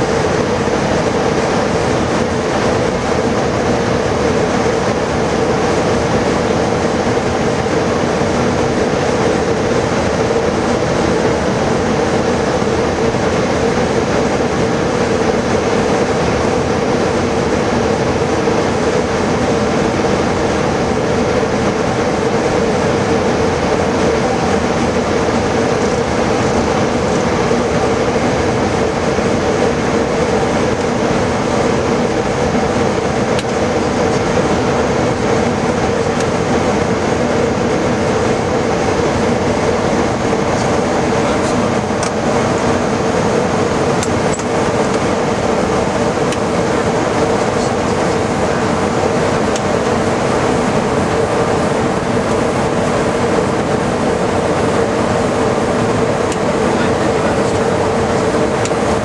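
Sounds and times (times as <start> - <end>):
constant engine drone: 0.0 - 59.0.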